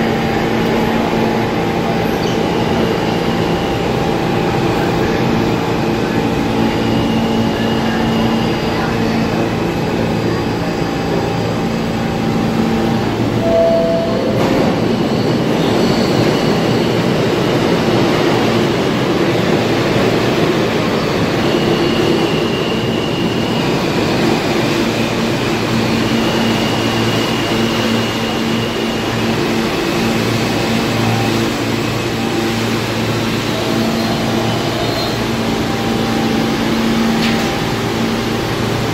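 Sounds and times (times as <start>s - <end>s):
subway train equipment humming: 0.0s - 38.9s.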